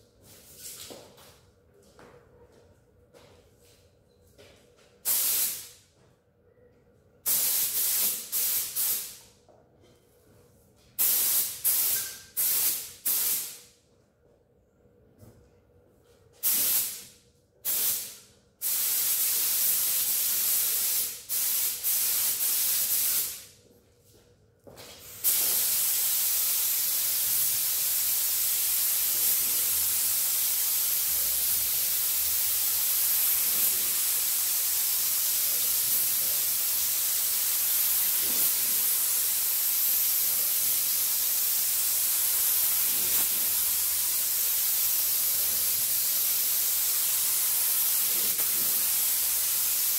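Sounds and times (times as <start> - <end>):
paint spray gun hissing: 5.1 - 5.7, 7.3 - 9.2, 11.0 - 13.6, 25.2 - 49.9.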